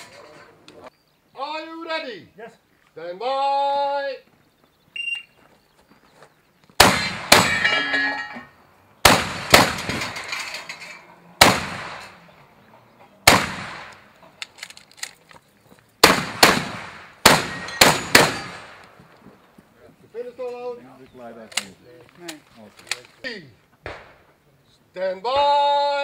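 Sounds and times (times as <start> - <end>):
shotgun shots echoing: 6.8 - 8.1, 9.0 - 10.3, 11.4 - 12.2, 13.2 - 14.2, 16.0 - 19.0, 23.8 - 24.3
metallic ringing: 7.5 - 8.6.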